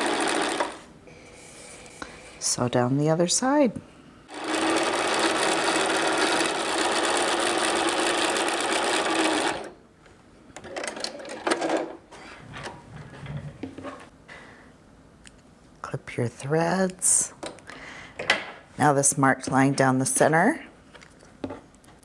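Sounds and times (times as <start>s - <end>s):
sewing machine stitching: 0.0s - 0.8s, 4.3s - 9.7s.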